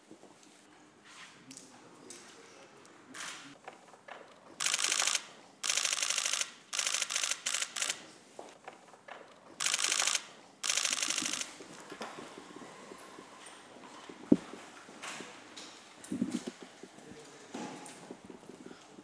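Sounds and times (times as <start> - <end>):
camera shutters firing in bursts: 4.6 - 8.0, 9.6 - 11.6.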